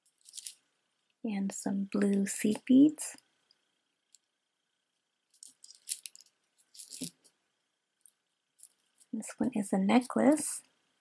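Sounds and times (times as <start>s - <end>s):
beaded jewelry clicking: 0.0s - 0.6s, 5.3s - 7.3s, 8.0s - 9.2s.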